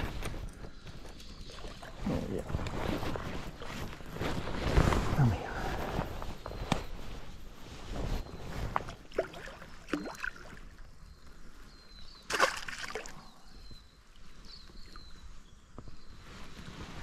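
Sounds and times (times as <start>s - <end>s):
rustles: 0.0s - 10.0s, 13.1s - 17.0s
fish splashing in water: 12.3s - 13.2s.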